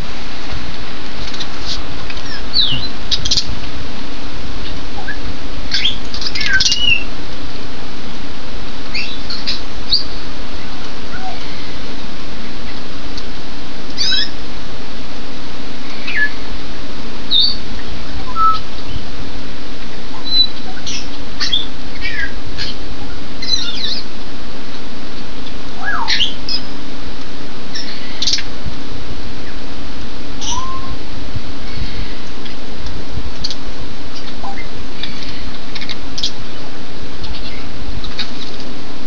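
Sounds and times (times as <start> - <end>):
parrots whistling and squawking: 1.6 - 3.5, 5.0 - 7.0, 14.0 - 14.3, 16.0 - 16.4, 17.3 - 17.6, 20.2 - 22.8, 23.4 - 24.0, 25.8 - 26.6, 27.7 - 28.4, 30.4 - 31.0.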